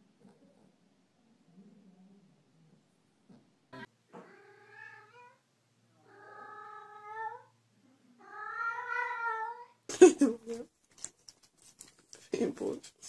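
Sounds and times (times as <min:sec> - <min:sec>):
cat meowing in long calls: 0:08.2 - 0:09.8.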